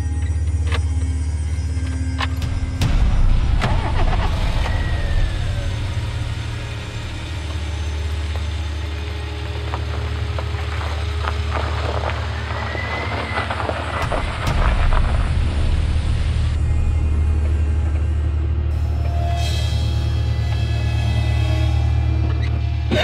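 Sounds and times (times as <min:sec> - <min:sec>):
car engine droning: 0:00.0 - 0:23.0
tyres crunching on snow: 0:06.5 - 0:16.7.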